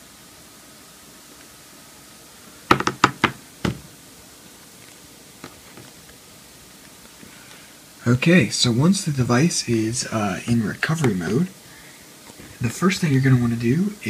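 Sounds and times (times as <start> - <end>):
steady low hiss: 0.0 - 14.0
sharp knocks on a desk: 2.7 - 3.8.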